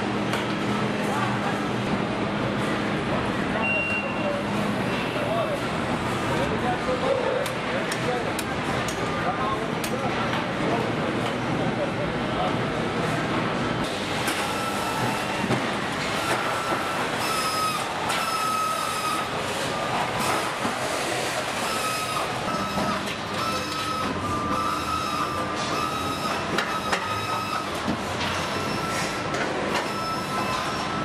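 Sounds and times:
factory machinery din: 0.0 - 31.0
high machine whine: 13.4 - 31.0.

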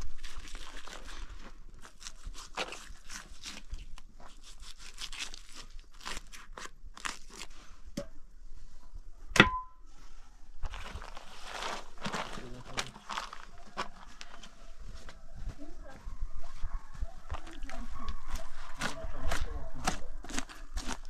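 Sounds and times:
crunching and crackling: 0.0 - 7.5, 10.6 - 16.0, 17.2 - 21.0
sharp ringing knock: 9.4 - 9.8.

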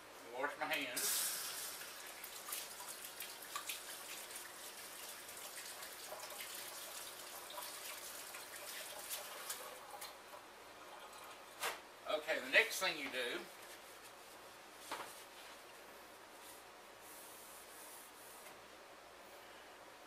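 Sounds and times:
hands washing under water: 1.0 - 10.2
water splashes and drips: 1.0 - 10.2.

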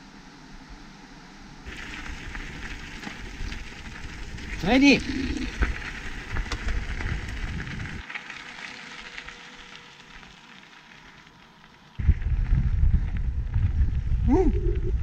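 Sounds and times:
bike tyres crunching gravel: 1.7 - 14.2
low rumble: 12.0 - 15.0.

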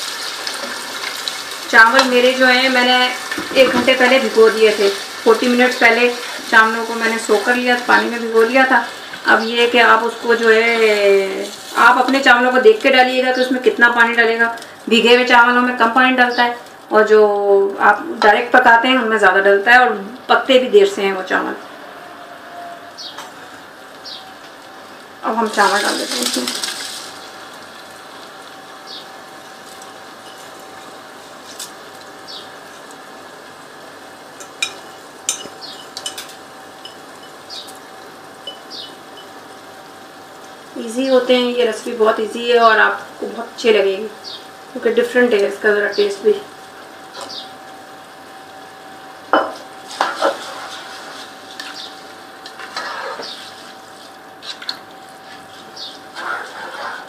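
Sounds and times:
metal spoon clinking against pot: 34.4 - 37.4
spoon scraping pot: 52.4 - 53.6, 56.1 - 57.0.

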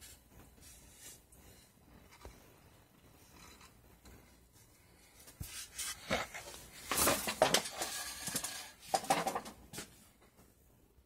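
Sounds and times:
handling clicks and scrapes: 5.3 - 10.0.

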